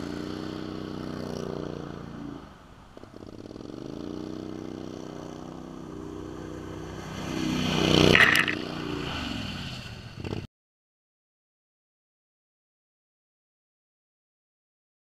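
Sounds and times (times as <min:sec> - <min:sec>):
all-terrain vehicle engine running: 0:00.0 - 0:10.5.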